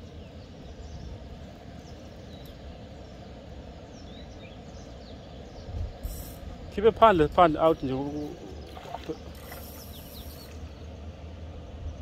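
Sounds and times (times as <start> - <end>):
low background rumble: 0.0 - 12.0
faint bird chirps: 7.7 - 11.0.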